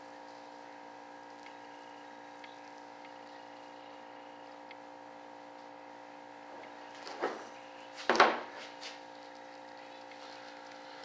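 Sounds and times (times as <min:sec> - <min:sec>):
steady machine hum: 0:00.0 - 0:11.0
faint ticks: 0:01.3 - 0:04.8.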